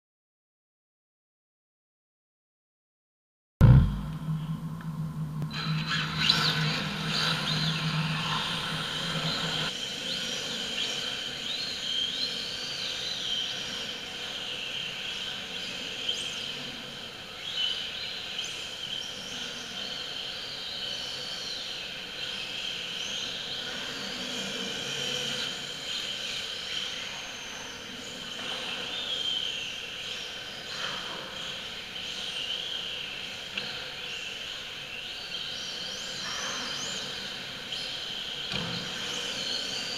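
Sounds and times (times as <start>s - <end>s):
steady high-pitched tone: 3.6s - 9.7s.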